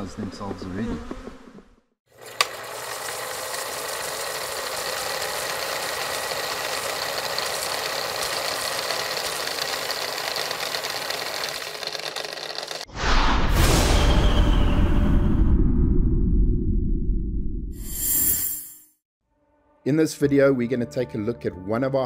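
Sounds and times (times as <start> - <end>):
tape machine click: 2.2 - 3.2
tape rewind whirring hiss: 2.2 - 12.8.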